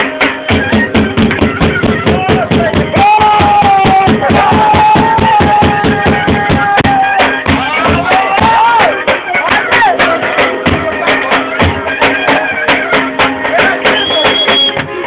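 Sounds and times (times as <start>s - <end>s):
accordion: 0.0s - 2.7s, 8.9s - 15.0s
bass drum beating: 0.0s - 15.0s
clarinet: 9.2s - 15.0s.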